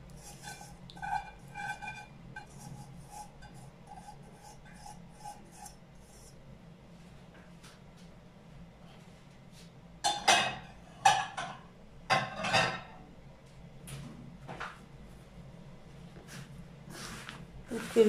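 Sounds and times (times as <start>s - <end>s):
kitchenware clattering: 10.0s - 13.0s.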